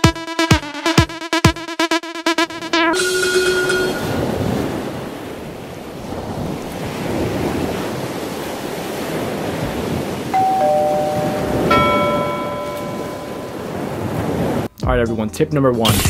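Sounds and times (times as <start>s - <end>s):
held musical tone: 0.0s - 4.8s, 10.4s - 13.8s
ocean waves and surf: 2.3s - 14.7s
ringing tone: 2.5s - 4.8s, 10.4s - 13.7s.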